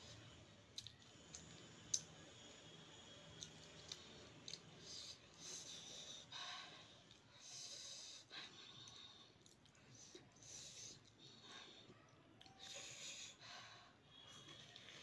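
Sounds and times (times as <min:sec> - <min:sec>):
soft mouth clicks chewing: 0:00.7 - 0:02.2, 0:03.3 - 0:05.0, 0:08.8 - 0:09.9.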